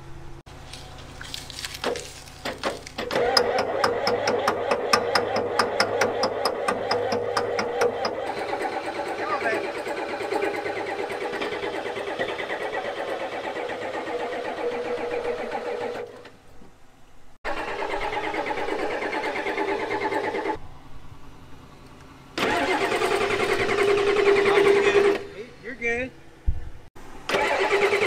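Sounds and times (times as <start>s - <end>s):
diesel engine cranking: 1.7s - 16.4s, 17.4s - 20.6s, 22.3s - 25.5s, 27.2s - 28.0s.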